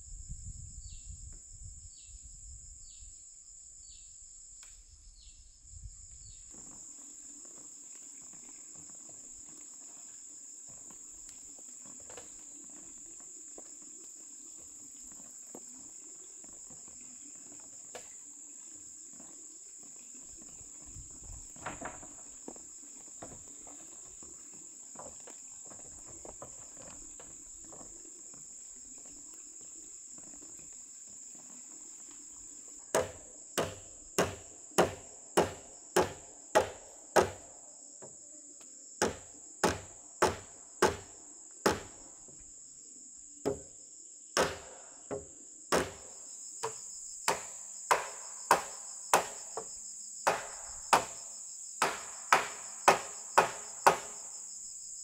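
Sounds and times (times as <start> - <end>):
high-pitched insect chorus: 0.0 - 55.0
hammer driving nails into wood: 32.9 - 37.5, 39.0 - 42.0, 44.4 - 49.6, 50.2 - 51.2, 51.8 - 54.2.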